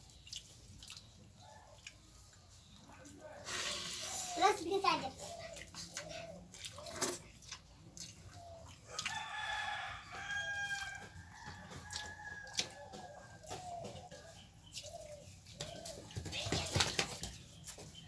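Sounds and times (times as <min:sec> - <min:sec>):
rooster crowing: 0:09.1 - 0:13.1.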